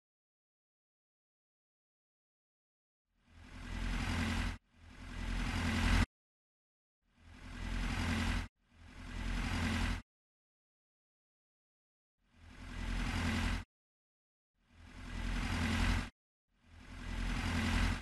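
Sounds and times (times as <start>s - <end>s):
machine engine running in bursts: 3.3s - 6.1s, 7.2s - 10.0s, 12.3s - 13.7s, 14.7s - 18.0s.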